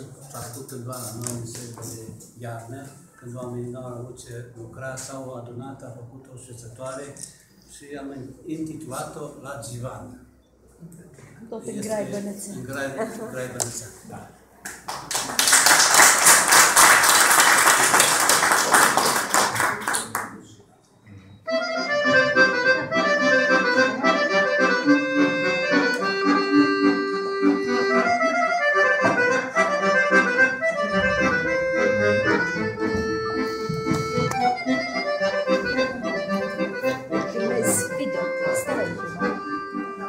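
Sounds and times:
audience applauding: 14.8s - 20.4s
piano accordion playing a tune: 21.4s - 40.0s.

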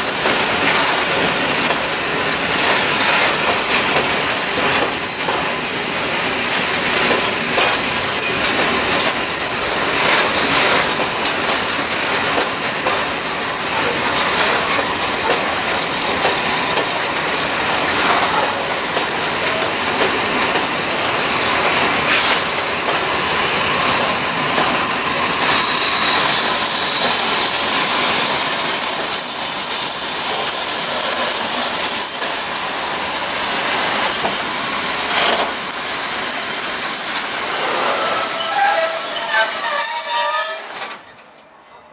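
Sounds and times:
train wheels rumbling on rails: 0.0s - 41.9s
high-pitched wheel squeal: 23.3s - 41.9s.

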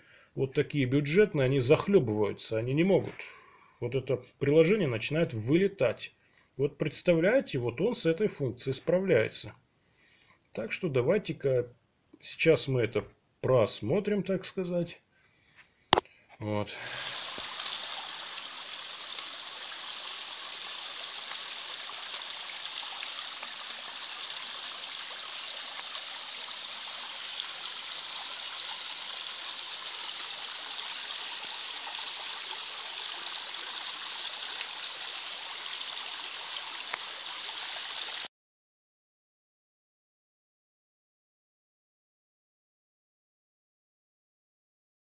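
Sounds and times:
water gushing and splashing: 16.8s - 38.3s.

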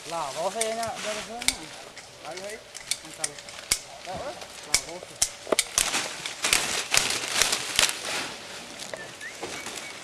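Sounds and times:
leafy branches rustling: 0.0s - 10.0s
twigs snapping: 0.6s - 8.1s.

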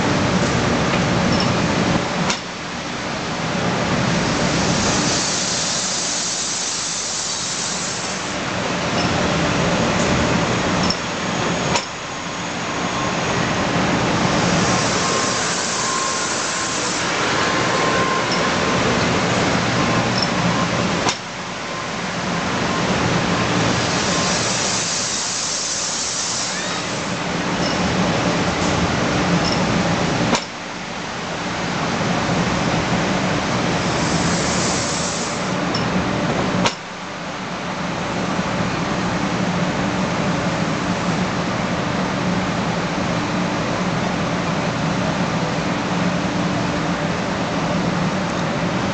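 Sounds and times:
train rolling past: 0.0s - 48.9s
sharp click: 11.7s - 12.0s, 21.0s - 21.3s, 30.3s - 30.6s.

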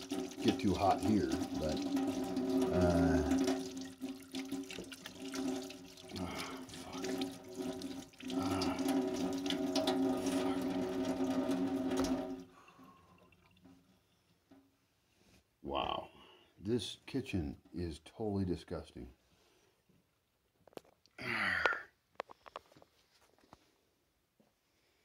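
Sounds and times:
tap water running into sink: 0.0s - 13.8s.

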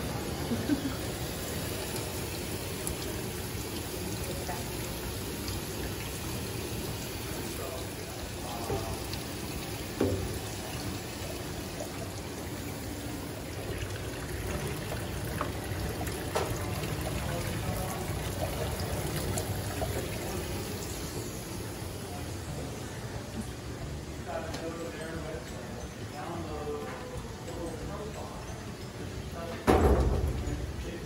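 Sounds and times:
water running from a hose: 0.0s - 22.6s.

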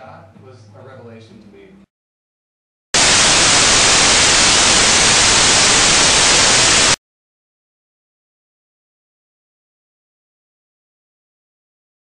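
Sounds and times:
loud static white noise: 3.0s - 7.0s.

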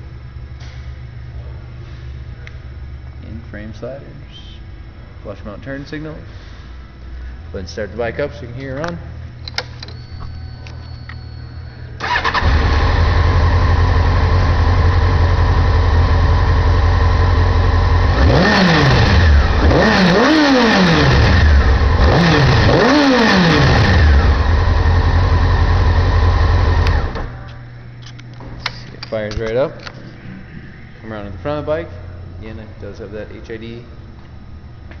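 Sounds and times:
motorcycle engine starting and idling: 12.0s - 27.5s.

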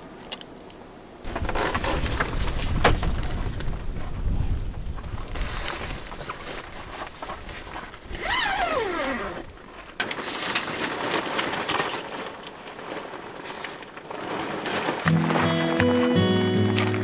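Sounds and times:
wind gusting: 1.3s - 9.8s.

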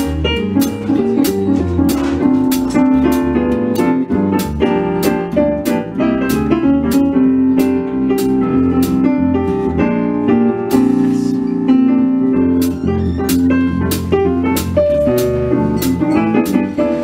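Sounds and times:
electric bass: 0.0s - 17.0s
piano playing jazz chords: 0.0s - 17.0s.

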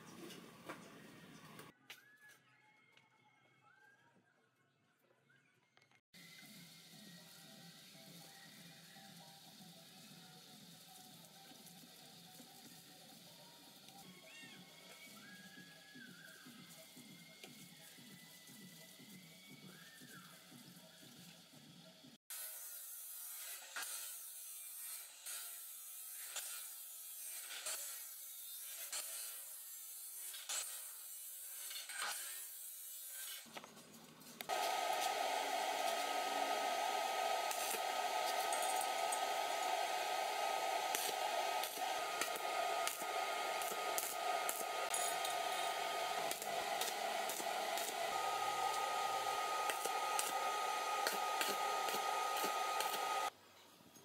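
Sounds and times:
thin steady whine: 34.5s - 53.3s
welding arc hissing and crackling: 34.5s - 53.3s
chop saw grinding steel pipe: 37.2s - 53.3s.

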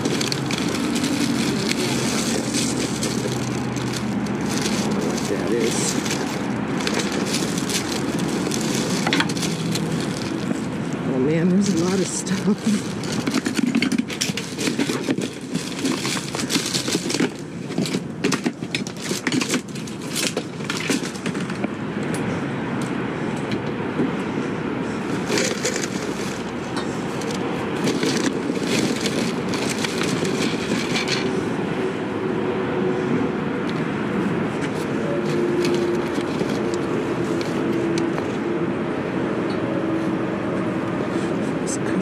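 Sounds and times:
rummaging through trash bags: 0.0s - 21.7s, 24.8s - 31.8s, 34.6s - 38.0s.

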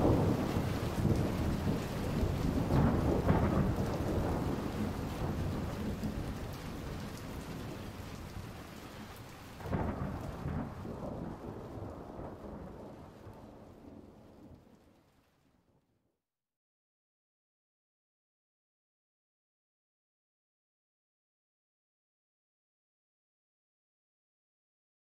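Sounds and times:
rain-like hiss: 0.0s - 15.6s.

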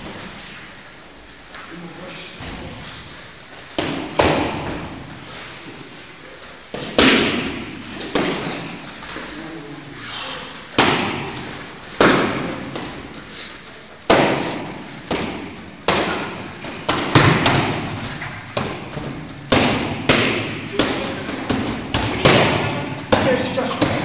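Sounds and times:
boxing gloves smacking mitts: 3.7s - 5.1s, 6.7s - 8.8s, 10.7s - 13.2s, 14.0s - 24.0s.

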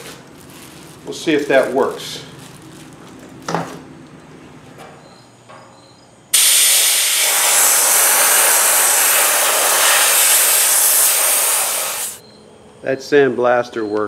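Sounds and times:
sandblaster hissing: 6.4s - 12.2s.

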